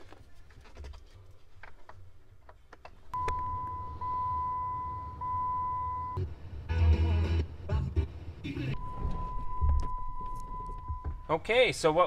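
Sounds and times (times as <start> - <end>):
high dashboard warning tone: 3.2 - 6.3, 8.8 - 11.5
low hum: 3.2 - 11.3.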